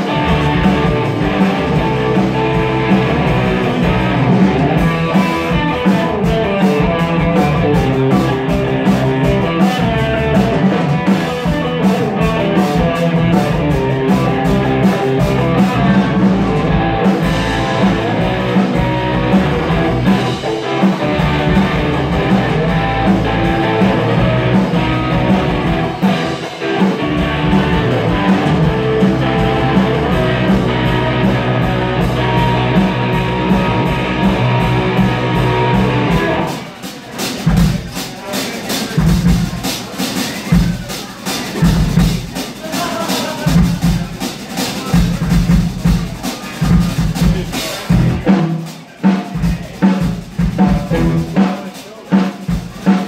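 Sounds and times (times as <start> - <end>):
electric guitar: 0.0 - 36.7, 46.7 - 48.5
drum kit: 0.0 - 53.0.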